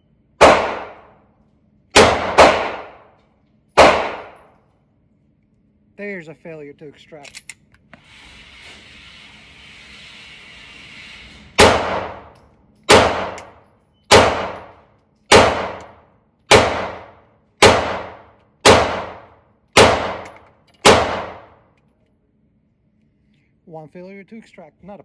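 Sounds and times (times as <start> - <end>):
pistol shots echoing indoors: 0.2 - 4.8, 11.6 - 21.7.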